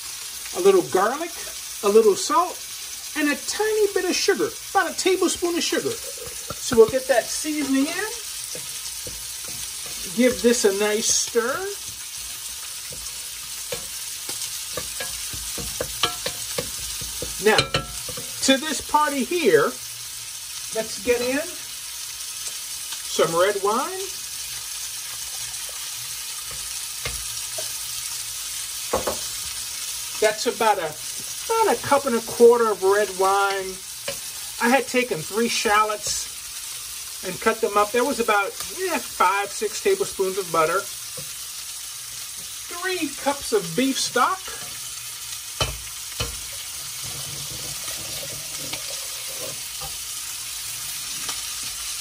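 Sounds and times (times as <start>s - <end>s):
shallots sizzling in butter: 0.0s - 52.0s
wine pouring into saucepan: 46.8s - 49.6s.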